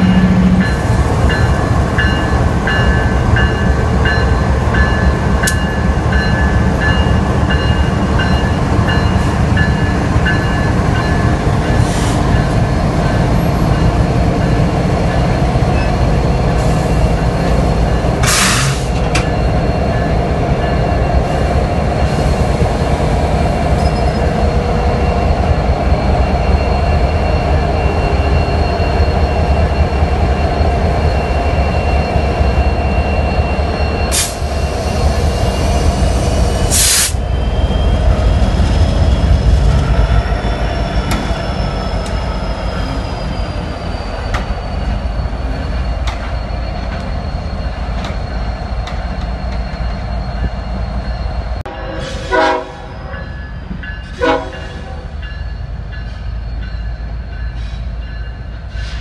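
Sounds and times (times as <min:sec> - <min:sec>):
freight train rumbling: 0:00.0 - 0:59.0
high wheel squeal: 0:23.5 - 0:59.0.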